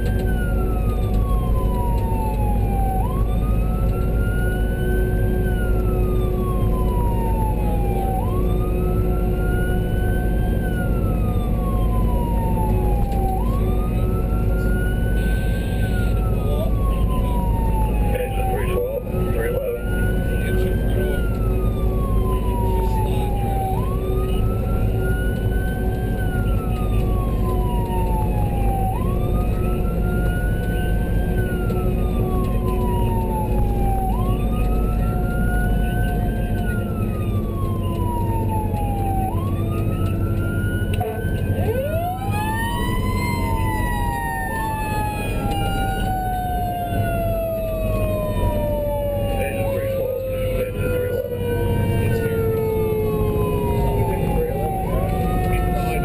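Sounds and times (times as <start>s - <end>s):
engine and road rumble: 0.0s - 56.0s
lower siren: 0.0s - 56.0s
siren wailing: 0.0s - 56.0s.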